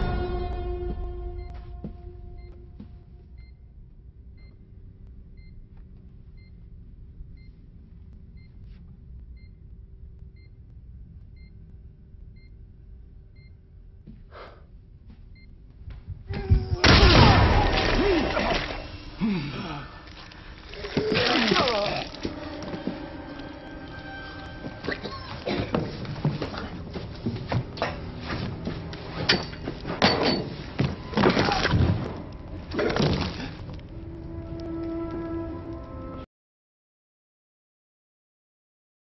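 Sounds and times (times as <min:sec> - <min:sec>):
faint regular beeps: 0:00.0 - 0:13.8, 0:15.2 - 0:15.7
low tense rumble: 0:00.0 - 0:36.2
cries and thuds of struggle: 0:16.2 - 0:19.8.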